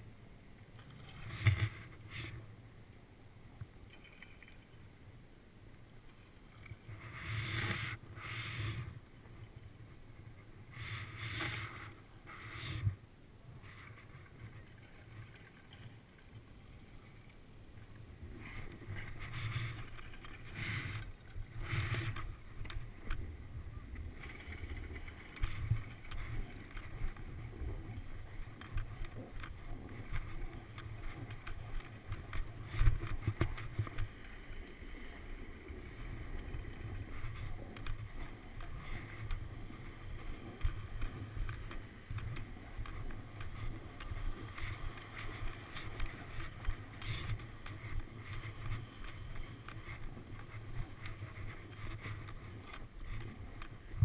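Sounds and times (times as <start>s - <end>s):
wind rumbling on camera: 0.0s - 54.0s
snowboard scraping on snow: 6.8s - 9.0s, 20.4s - 23.0s.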